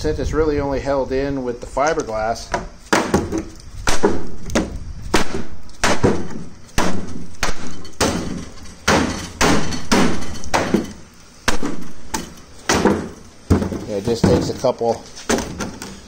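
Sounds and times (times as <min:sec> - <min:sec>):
sharp knocks with hollow ring: 0:02.5 - 0:14.5.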